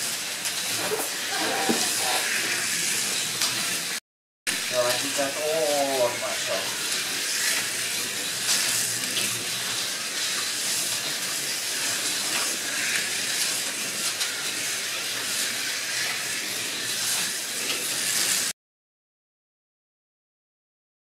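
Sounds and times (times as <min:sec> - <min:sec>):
slot cars whirring on track: 0:04.6 - 0:18.5.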